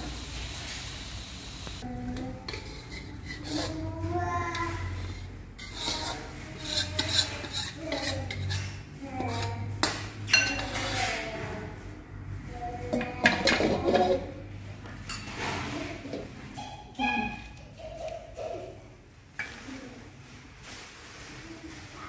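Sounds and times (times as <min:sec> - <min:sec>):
metal spatula scraping a wok: 0:02.2 - 0:11.8.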